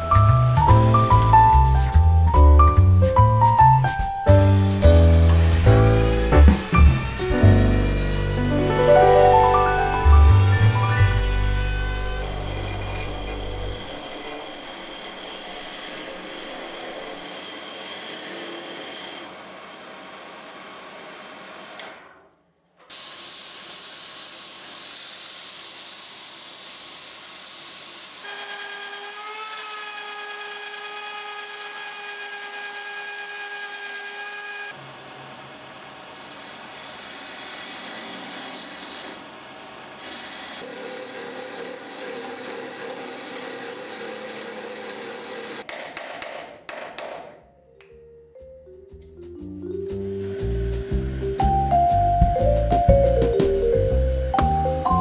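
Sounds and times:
hiss of wood cutting: 4.4s - 8.6s, 22.9s - 28.3s, 50.0s - 51.3s
router motor whine: 5.3s - 8.4s, 10.4s - 20.0s, 27.6s - 39.3s, 39.9s - 45.6s.

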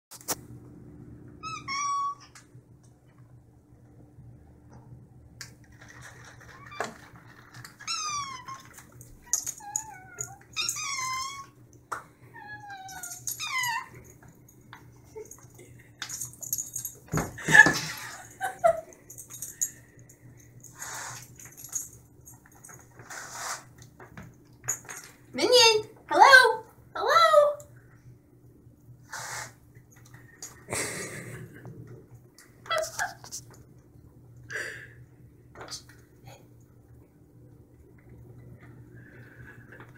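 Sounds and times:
cats meowing: 9.5s - 11.6s.

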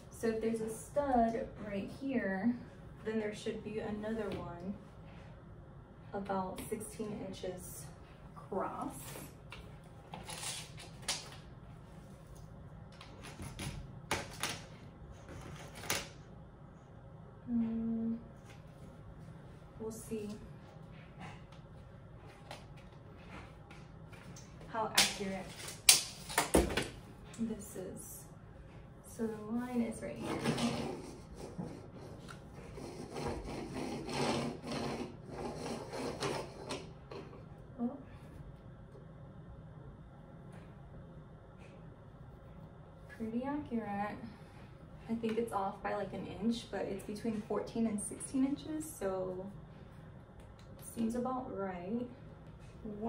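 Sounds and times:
stud finder scraping on a wall: 30.1s - 36.9s.

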